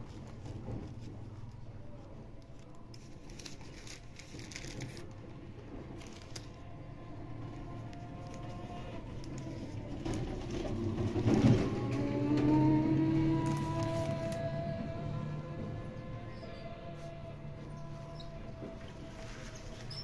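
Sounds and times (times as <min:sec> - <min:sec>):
faint music: 0:00.0 - 0:20.0
plastic sheets crinkling: 0:02.4 - 0:05.2, 0:05.9 - 0:06.7, 0:07.9 - 0:10.6, 0:13.4 - 0:14.6.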